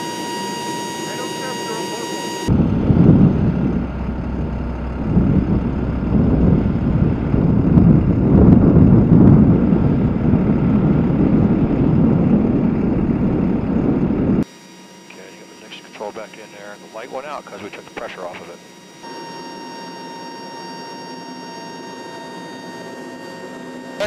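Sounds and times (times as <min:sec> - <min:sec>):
turboprop aircraft taking off: 0:00.0 - 0:14.4.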